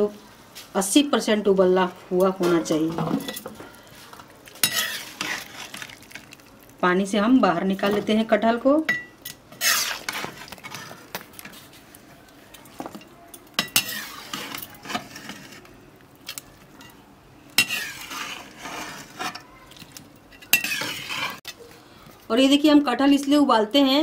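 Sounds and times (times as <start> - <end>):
spoon scraping a cooking pot: 4.5 - 6.1, 8.9 - 12.0, 12.6 - 17.0, 17.6 - 21.6.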